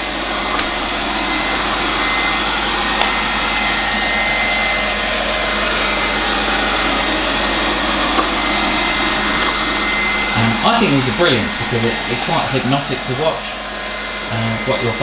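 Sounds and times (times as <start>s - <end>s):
robot vacuum running: 0.0s - 15.0s
thin steady whine: 0.0s - 15.0s.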